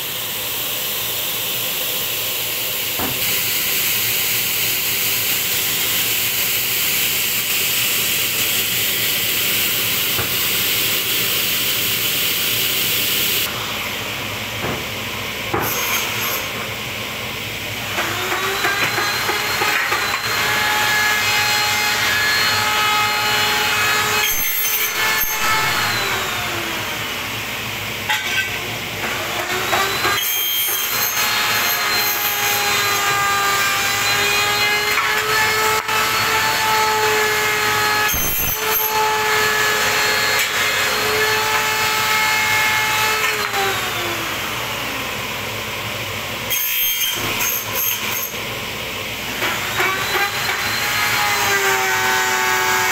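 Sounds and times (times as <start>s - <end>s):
saw whine cutting aluminium: 0.0s - 45.6s, 46.3s - 52.9s
pneumatic hissing bursts: 0.5s - 13.5s, 38.1s - 38.9s.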